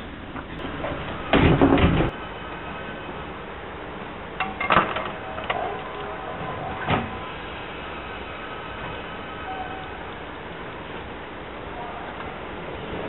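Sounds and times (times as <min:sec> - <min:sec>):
standing train humming: 0:00.0 - 0:13.0
train doors closing with rattle: 0:00.3 - 0:02.2, 0:04.4 - 0:07.5, 0:08.7 - 0:10.1.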